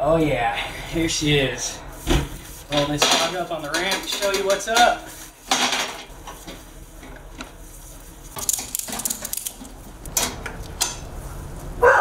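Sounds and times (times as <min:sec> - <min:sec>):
bike clattering on metal stand: 0:02.7 - 0:06.1
dog barking: 0:11.8 - 0:12.0.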